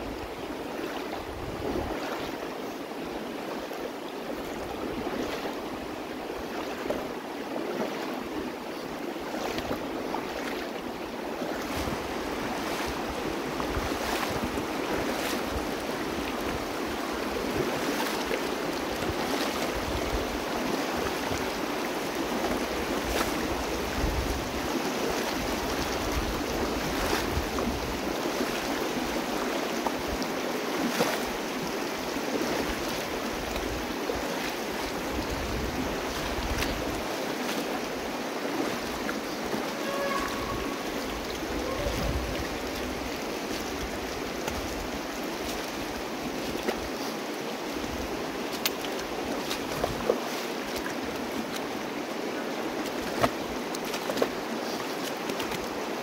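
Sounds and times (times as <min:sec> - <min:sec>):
wind rumble on microphone: 0:00.0 - 0:02.4, 0:11.6 - 0:30.3, 0:34.8 - 0:37.1, 0:39.7 - 0:46.8
river rushing over rocks: 0:00.0 - 0:56.0
sharp water splashes: 0:11.4 - 0:47.1.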